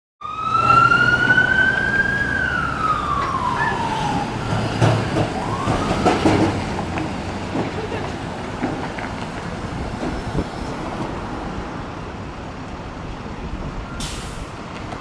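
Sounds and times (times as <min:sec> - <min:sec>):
traffic rumble: 0:00.2 - 0:15.0
wheels knocking on track junction: 0:04.5 - 0:09.3.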